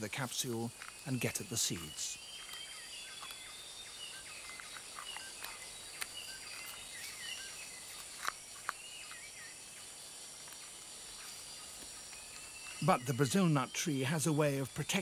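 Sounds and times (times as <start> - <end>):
insect hiss: 0.0 - 15.0
sharp gnawing clicks: 2.4 - 3.5, 4.4 - 6.8.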